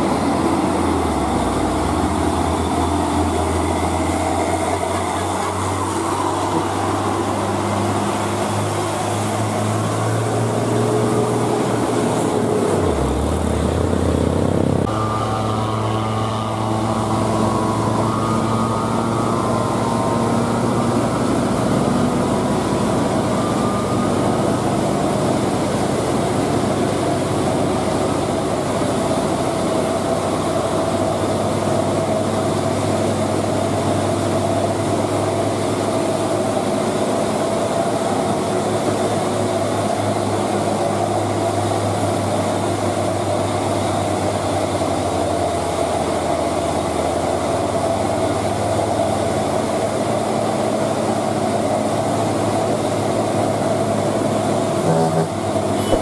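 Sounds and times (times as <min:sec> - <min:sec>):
steady whine: 0:00.0 - 0:56.0
truck diesel engines droning: 0:00.0 - 0:56.0.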